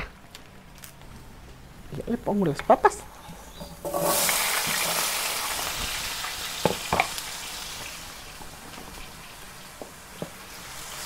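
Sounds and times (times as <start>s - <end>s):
potatoes sizzling in hot fat: 2.3s - 11.0s.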